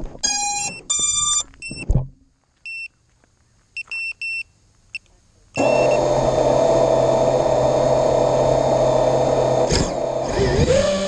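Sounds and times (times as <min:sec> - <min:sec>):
electronic beeps: 0:03.8 - 0:06.1.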